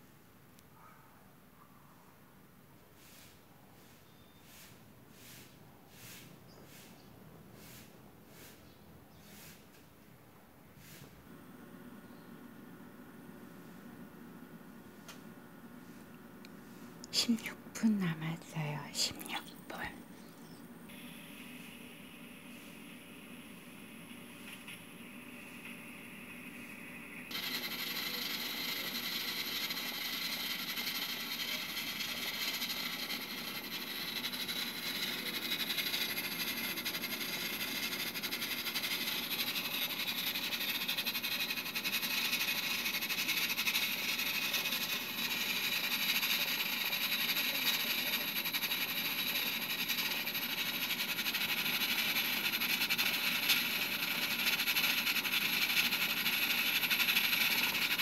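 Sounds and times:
steam hissing from rice cooker: 20.9 - 24.3, 25.0 - 58.0.

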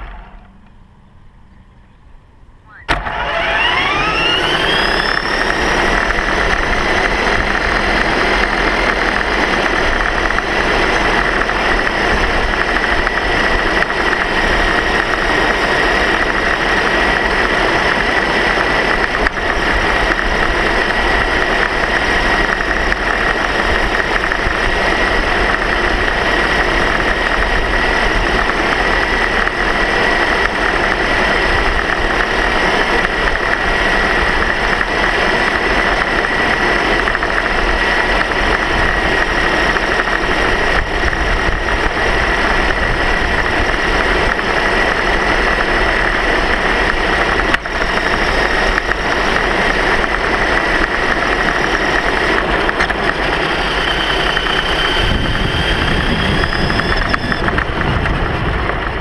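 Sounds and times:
continuous rushing noise: 0.0 - 59.0
motor high whine: 0.0 - 59.0.

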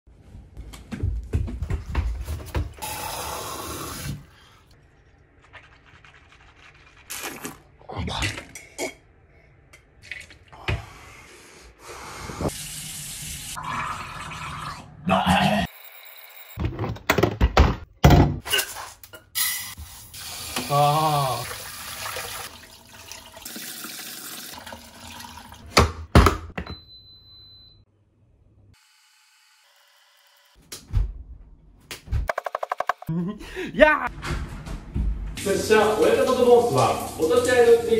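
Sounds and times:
water rushing into cup: 20.4 - 25.6
rice cooker beep: 26.6 - 27.8.

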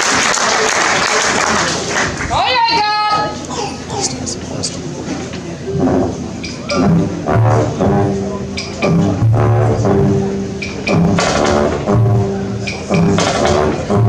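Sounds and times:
brass horns sounding chords: 5.6 - 14.0
drum hits: 5.8 - 14.0.

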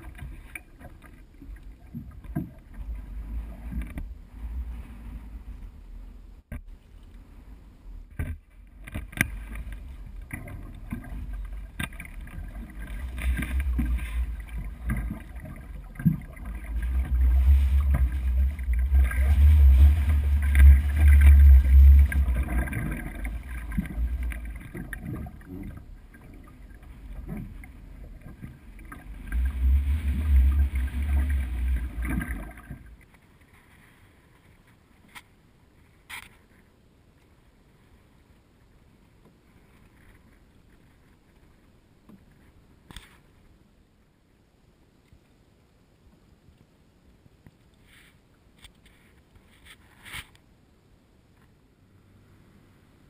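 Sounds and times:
water splashing around canoe: 0.0 - 5.7, 8.0 - 34.4
paddle strokes: 0.0 - 5.9, 6.5 - 36.8, 47.6 - 50.5.

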